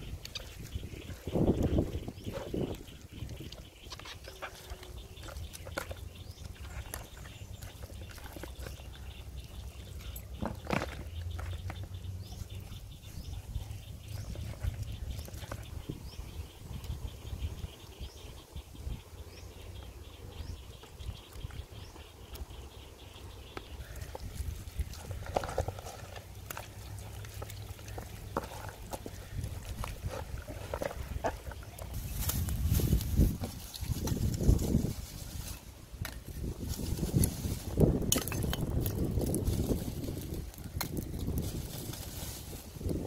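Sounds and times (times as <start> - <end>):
wind rumble on microphone: 0.0 - 26.2, 28.8 - 43.0
hands handling meat in plastic bowl: 23.8 - 43.0.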